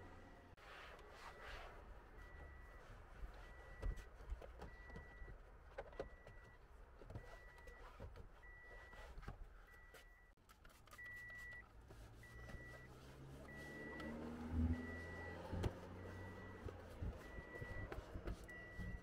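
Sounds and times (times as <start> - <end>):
car warning chime beeping: 12.2 - 19.0.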